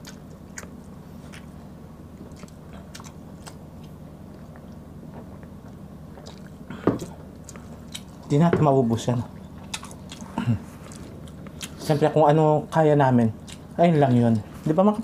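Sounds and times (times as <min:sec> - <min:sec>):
chewing and swallowing mouth sounds: 0:00.0 - 0:08.3, 0:09.3 - 0:12.0, 0:13.4 - 0:14.3.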